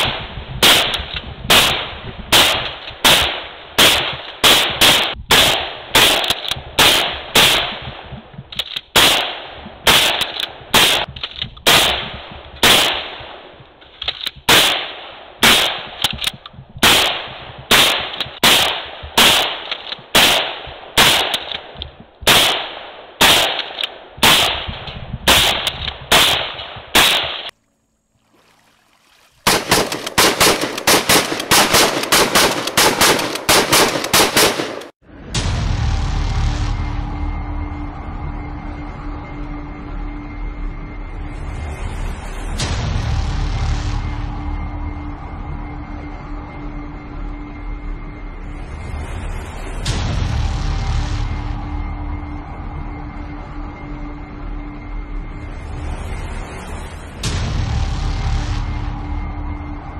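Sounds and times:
shotgun firing rapidly: 0.0 - 7.9, 8.9 - 13.2, 14.5 - 16.0, 16.8 - 21.6, 22.2 - 27.5, 29.5 - 34.9.

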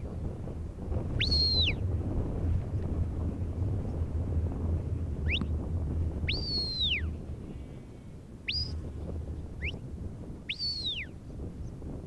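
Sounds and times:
long rising and falling whistle: 1.2 - 1.8, 6.2 - 7.2, 8.4 - 8.8, 10.5 - 11.1
short rising whistle: 1.2 - 1.8, 6.3 - 7.2, 8.5 - 8.8, 10.5 - 11.1.

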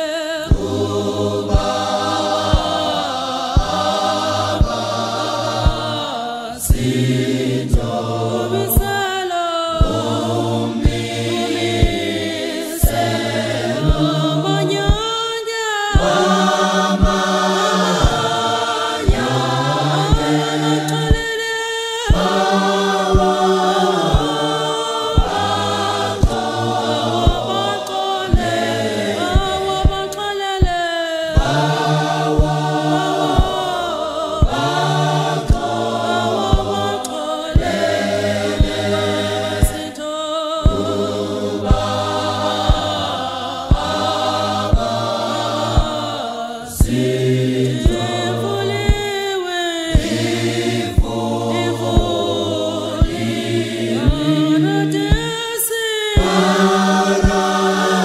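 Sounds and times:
gospel choir singing: 0.0 - 58.0
steady beat of sharp hits: 0.5 - 4.9, 5.6 - 5.9, 6.7 - 8.0, 10.8 - 15.1, 16.0 - 17.3, 17.9 - 21.3, 22.1 - 24.6, 25.2 - 30.8, 31.4 - 33.8, 34.4 - 39.8, 41.6 - 43.0, 43.7 - 46.1, 48.8 - 49.1, 51.0 - 52.3, 53.0 - 55.3, 57.2 - 57.5.

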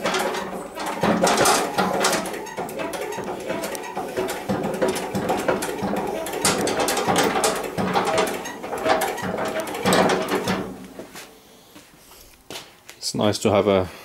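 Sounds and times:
scissor lift mechanical clicks and clanks: 0.0 - 11.0
squeaking: 0.0 - 11.2.

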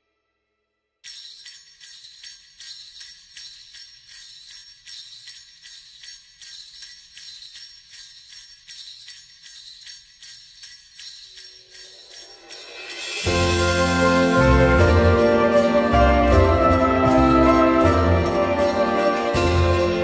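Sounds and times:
jingle bells shaken rhythmically: 1.0 - 20.0.

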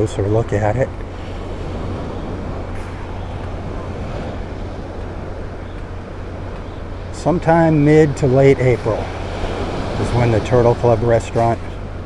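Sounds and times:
surf waves on a beach: 0.0 - 12.0
wind on microphone: 0.9 - 7.1.

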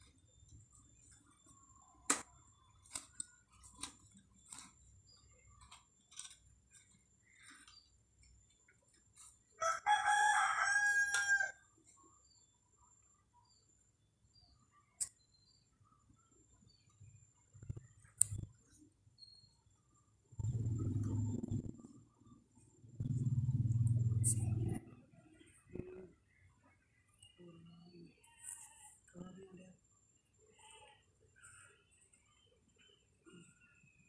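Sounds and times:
rooster crowing: 9.6 - 11.6.

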